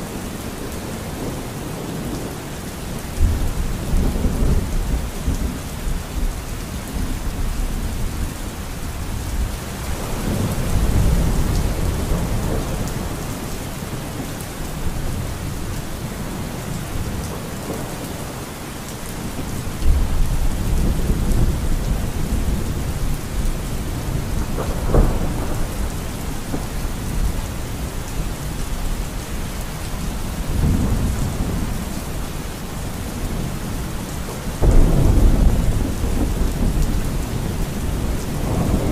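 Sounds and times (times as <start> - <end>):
steady rain: 0.0 - 38.9
thunder rumbling: 7.0 - 18.5, 19.2 - 38.9.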